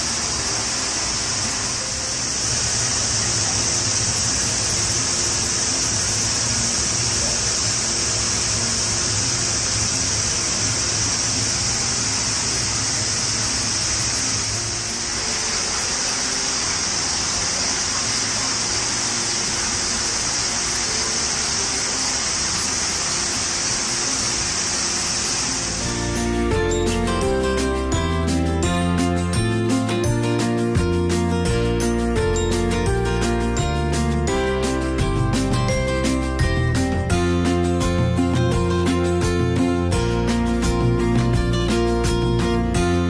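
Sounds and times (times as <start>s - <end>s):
flowing water rushing: 0.0s - 26.5s.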